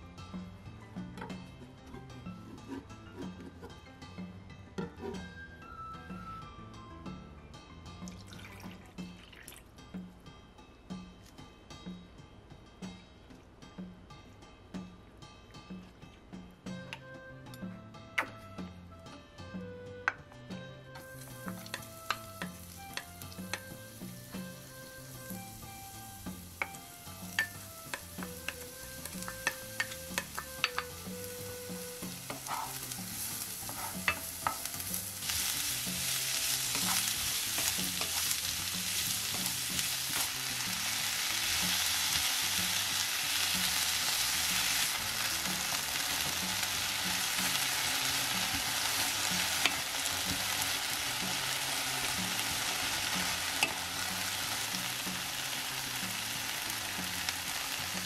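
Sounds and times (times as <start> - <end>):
spoon tapping against pan: 20.0 - 20.2, 21.4 - 23.8, 26.6 - 31.1, 33.7 - 34.7
vegetables sizzling in oil: 21.0 - 58.0.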